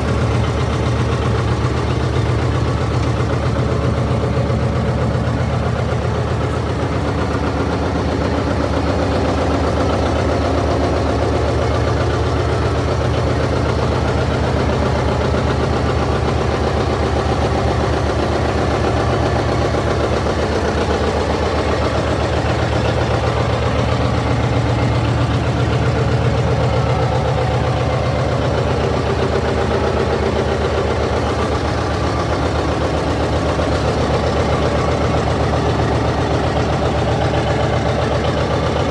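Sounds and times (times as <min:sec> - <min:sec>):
tractor engine idling: 0:00.0 - 0:38.9.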